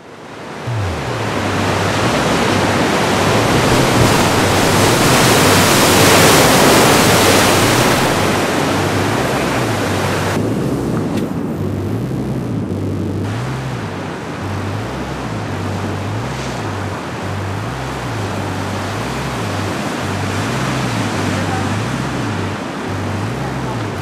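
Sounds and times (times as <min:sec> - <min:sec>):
two-note bass line: 0:00.0 - 0:24.0
surf breaking: 0:00.4 - 0:11.5.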